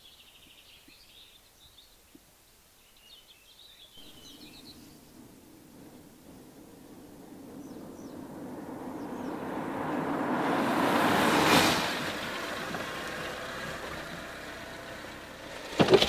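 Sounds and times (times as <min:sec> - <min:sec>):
car approaching: 0:04.0 - 0:16.0
car engine idling: 0:04.0 - 0:16.0.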